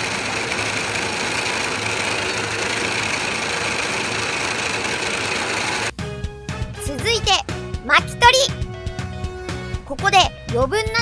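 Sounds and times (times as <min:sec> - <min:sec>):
tapping machine vibrating trays: 0:00.0 - 0:05.9.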